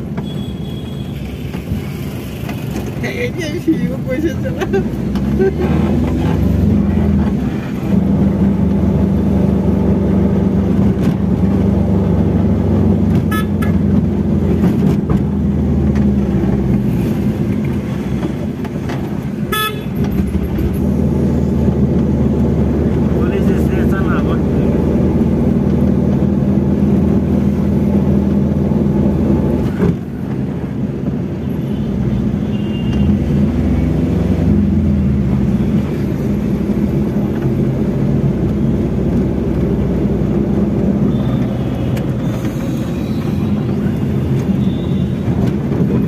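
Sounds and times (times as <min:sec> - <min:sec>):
vehicle engine and road noise: 0:00.0 - 0:46.0.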